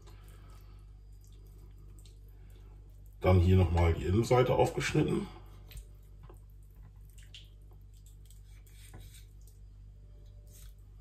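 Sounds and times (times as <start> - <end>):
steady low hum: 0.0 - 11.0
knife slicing raw chicken: 8.2 - 9.4.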